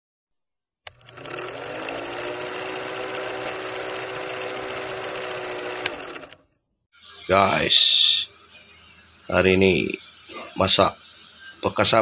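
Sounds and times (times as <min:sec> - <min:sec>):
film projector clatter: 0:00.9 - 0:06.4
motor hum: 0:00.9 - 0:12.0.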